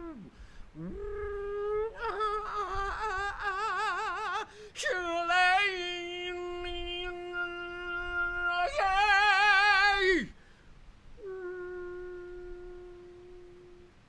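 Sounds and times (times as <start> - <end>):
man singing wordlessly: 0.0 - 10.4.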